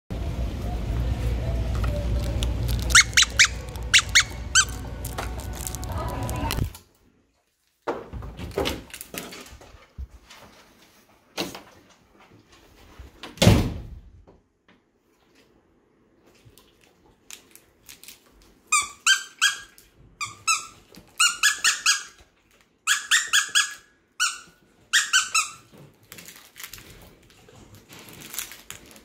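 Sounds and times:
squeaky dog toy squeaking: 2.7 - 6.7, 18.7 - 22.2, 22.8 - 25.7.

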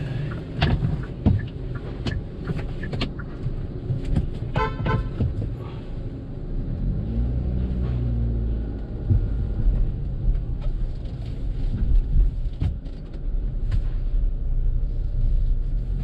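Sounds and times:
car cabin rumble: 0.0 - 16.0.

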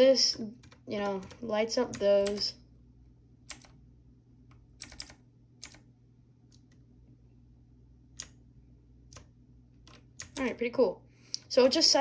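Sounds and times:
mechanical keyboard clicks: 0.3 - 2.6, 3.5 - 3.8, 4.5 - 5.8, 8.2 - 8.4, 9.1 - 10.6.

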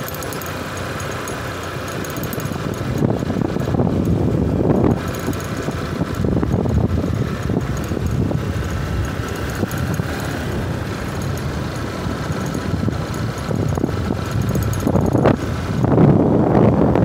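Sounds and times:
motorcycle engine: 0.0 - 17.0
tyres on gravel and wind noise: 0.0 - 17.0.

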